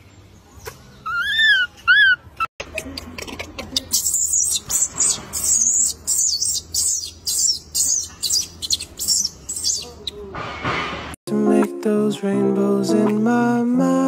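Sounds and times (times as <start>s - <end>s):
shrill animal calls: 1.0s - 2.4s, 3.7s - 10.2s.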